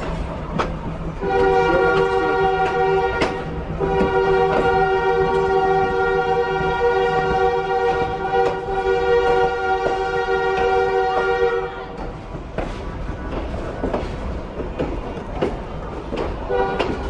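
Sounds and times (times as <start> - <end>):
train wheels clicking over rail joints: 0.0 - 17.0
train horn blasts: 1.1 - 12.1, 16.4 - 17.0.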